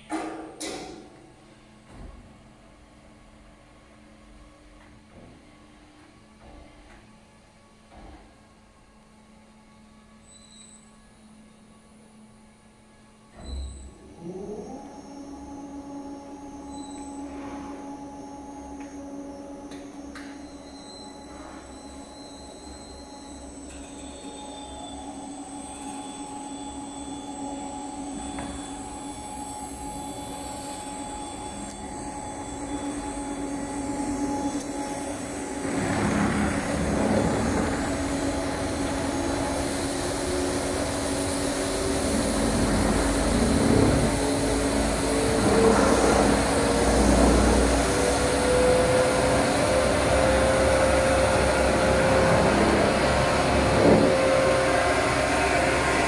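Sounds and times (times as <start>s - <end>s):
motor hum: 13.8s - 56.0s
rising whine: 14.0s - 56.0s.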